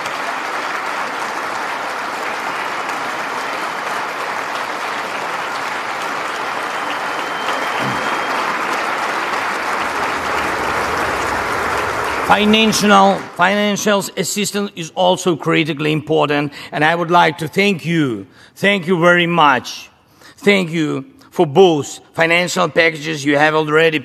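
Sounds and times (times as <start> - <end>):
audience applauding: 0.0 - 14.2.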